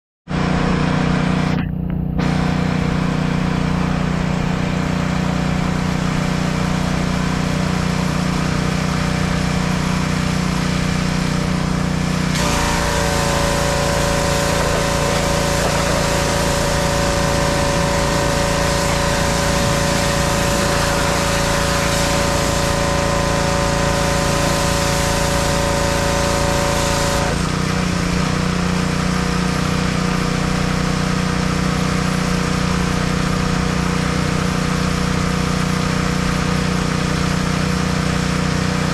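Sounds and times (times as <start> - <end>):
small gasoline engine running: 0.3 - 38.9
high-pressure spray hissing: 8.8 - 27.5.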